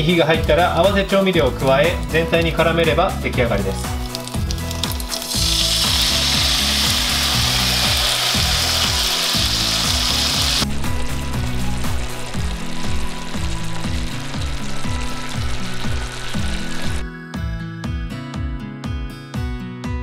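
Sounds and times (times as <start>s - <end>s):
background music: 0.0s - 20.0s
onions sizzling in a pan: 4.0s - 10.6s, 11.2s - 17.0s.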